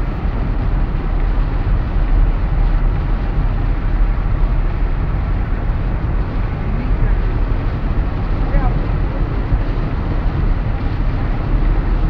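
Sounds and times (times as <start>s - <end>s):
car engine hum: 0.0s - 12.0s
tyres hissing on wet pavement: 0.0s - 12.0s.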